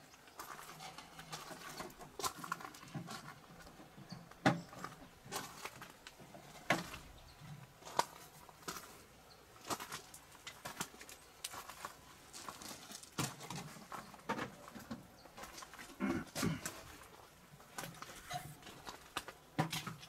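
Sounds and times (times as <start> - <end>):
footsteps crunching on gravel: 0.4 - 3.8, 4.7 - 7.1, 7.8 - 9.0, 9.6 - 14.8.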